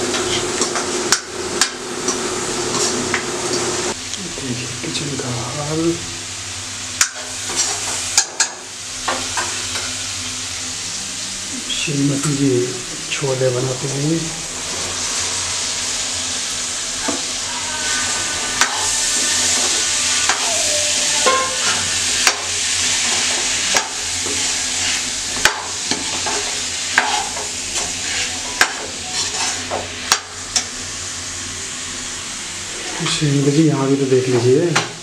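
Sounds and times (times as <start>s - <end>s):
chickpeas sizzling in a pan: 0.0s - 35.0s
spoon clinking and scraping pan: 21.2s - 22.4s, 25.9s - 30.2s.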